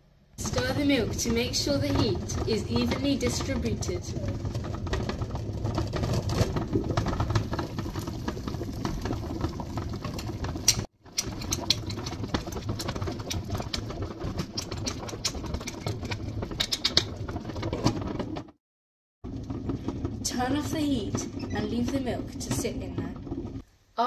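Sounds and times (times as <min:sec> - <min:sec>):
water bubbling in steel pot: 0:00.6 - 0:17.6.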